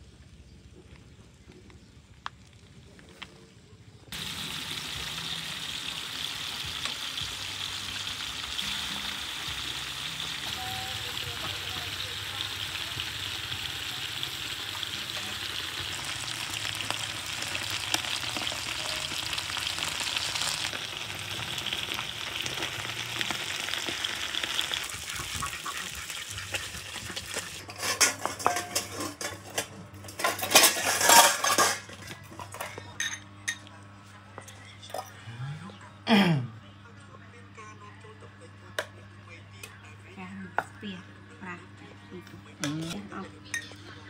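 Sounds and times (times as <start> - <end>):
fish sizzling in hot oil: 4.1 - 28.8
metal spatula scraping: 25.4 - 32.0.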